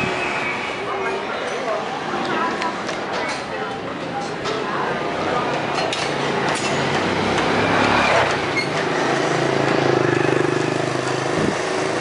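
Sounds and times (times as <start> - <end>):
engine running: 6.8 - 12.0.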